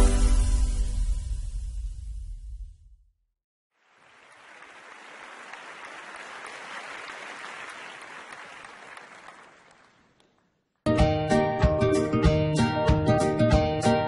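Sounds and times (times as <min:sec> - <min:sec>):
applause: 0:03.8 - 0:10.6.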